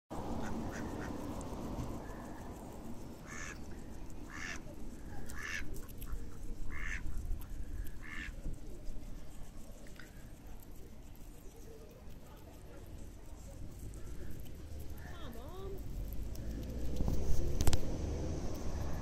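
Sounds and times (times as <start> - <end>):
duck quacking: 4.3 - 4.6, 5.3 - 5.7, 6.7 - 7.0.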